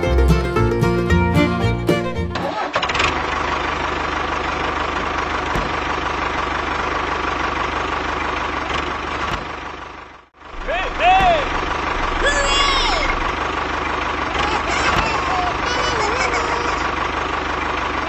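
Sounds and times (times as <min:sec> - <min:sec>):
banjo-like plucked string music: 0:00.0 - 0:02.6
tractor engine running: 0:00.0 - 0:18.0.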